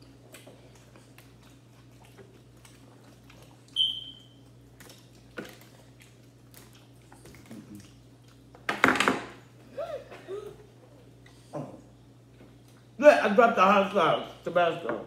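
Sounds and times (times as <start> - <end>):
people chewing: 0.0 - 8.7.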